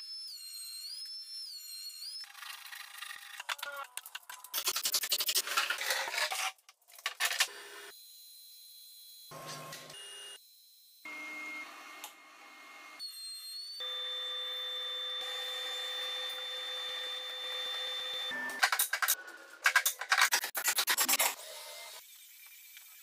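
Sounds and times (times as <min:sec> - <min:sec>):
saw whine: 0:07.5 - 0:19.5.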